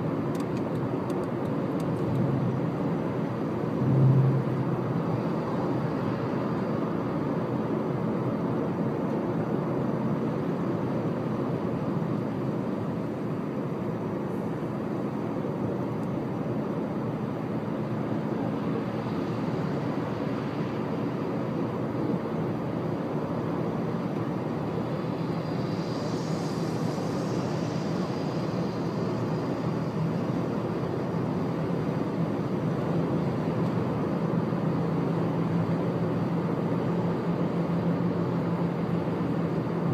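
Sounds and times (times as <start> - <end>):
car road noise from inside: 0.0 - 39.9
faint hiss: 24.8 - 30.8.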